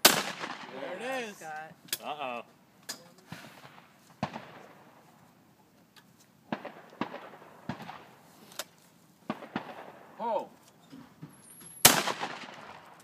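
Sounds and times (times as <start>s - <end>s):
shotgun shot with echo: 0.0s - 0.8s, 11.8s - 12.8s.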